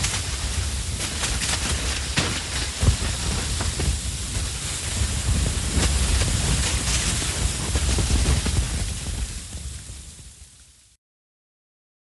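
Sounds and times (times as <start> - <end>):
avalanche rumble: 0.0 - 10.7
small crackles: 0.0 - 10.8
hiss of sliding snow: 0.0 - 11.0.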